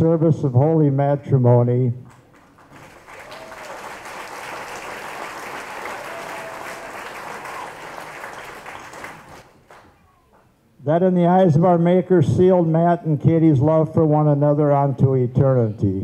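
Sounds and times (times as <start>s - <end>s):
crowd applauding: 2.1s - 10.0s.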